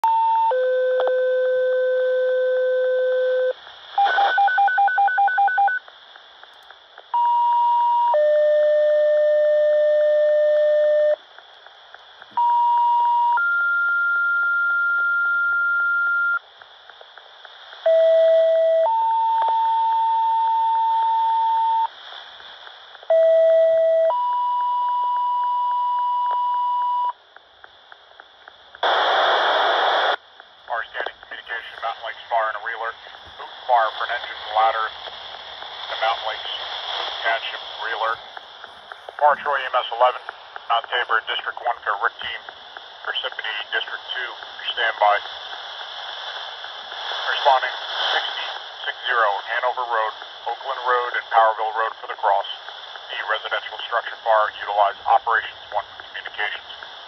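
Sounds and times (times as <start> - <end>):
radio static burst: 3.6 - 7.1, 26.1 - 57.0.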